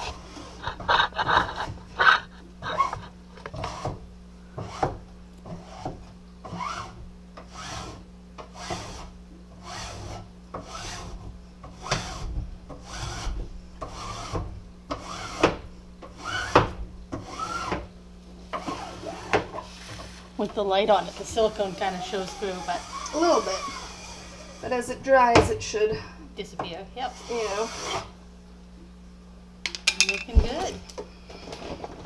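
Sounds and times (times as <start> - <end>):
squeegee squeaking: 2.6 - 3.9, 18.6 - 25.0, 27.0 - 28.1.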